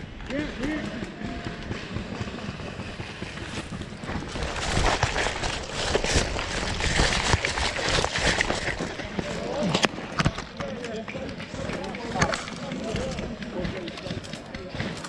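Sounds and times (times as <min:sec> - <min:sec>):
footsteps in woodland: 0:02.7 - 0:15.0
brush rustling against clothing: 0:04.1 - 0:09.0.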